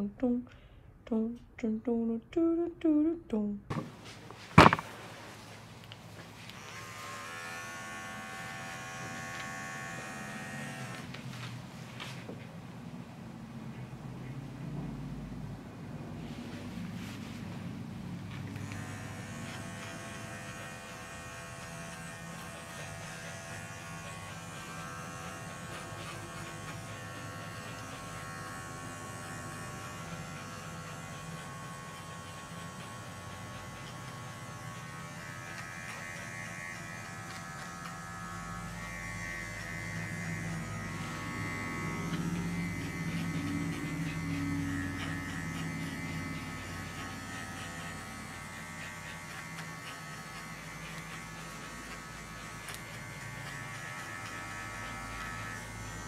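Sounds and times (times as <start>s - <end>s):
electric dog clippers buzzing: 4.6s - 5.0s, 6.1s - 11.5s, 18.3s - 56.0s.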